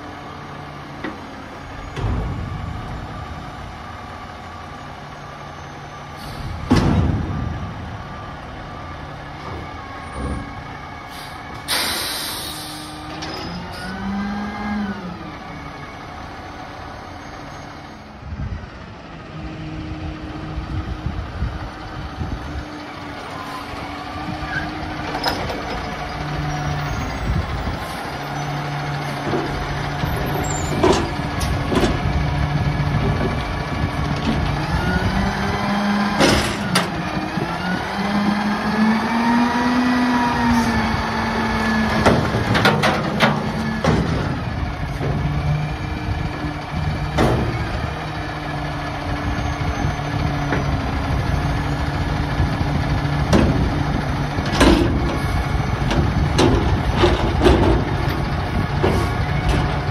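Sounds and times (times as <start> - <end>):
garbage truck engine revving: 0.2 - 17.6, 18.7 - 59.9
metal dumpster clanging: 0.9 - 10.8, 24.3 - 35.2, 36.0 - 37.5, 40.3 - 59.9.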